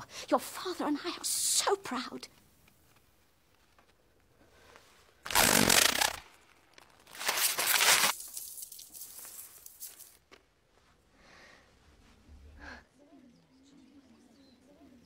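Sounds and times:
scraps rustling: 4.6 - 10.2
paper ripping: 5.2 - 10.2.

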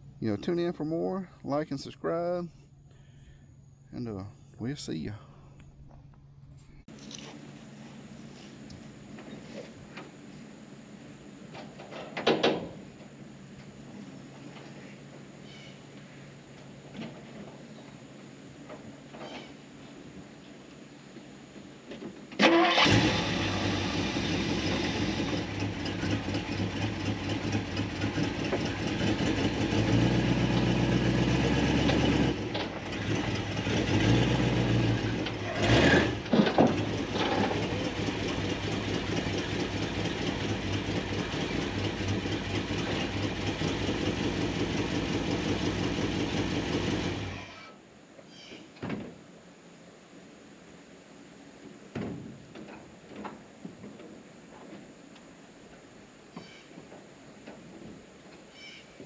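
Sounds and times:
car engine starting and revving: 22.4 - 47.5.

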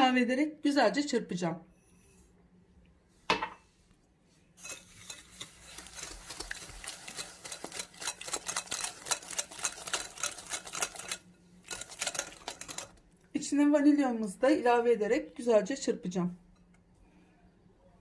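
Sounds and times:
whisk scraping glass bowl: 4.6 - 13.0.

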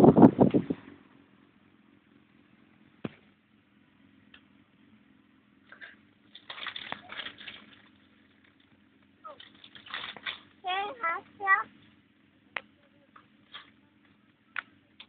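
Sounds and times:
wind buffeting microphone: 0.0 - 1.0
motorcycle engine hum: 0.0 - 15.0.

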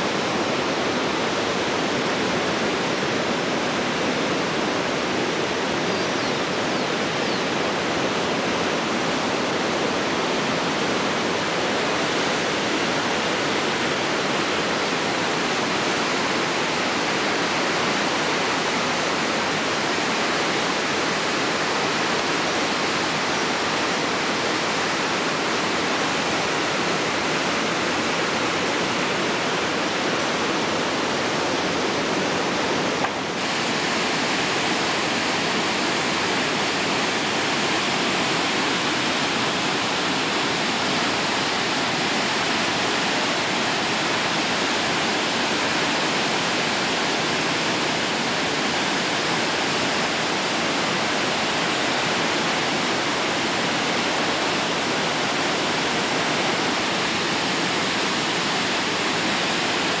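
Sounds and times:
whitewater rapids roaring: 0.0 - 60.0.

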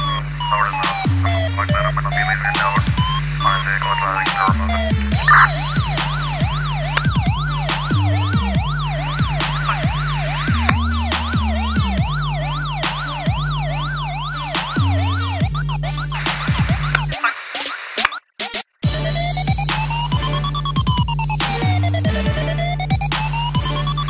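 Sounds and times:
siren wailing: 0.0 - 18.2, 18.8 - 24.0
electronic music with deep bass: 0.0 - 24.0.

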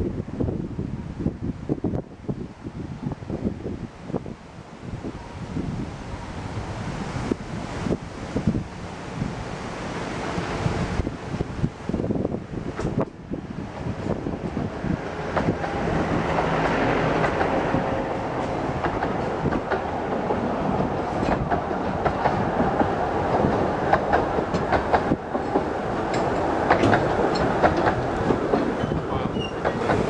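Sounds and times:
diesel locomotive engine passing: 1.8 - 30.0
train wheels clicking over rail joints: 12.6 - 30.0.

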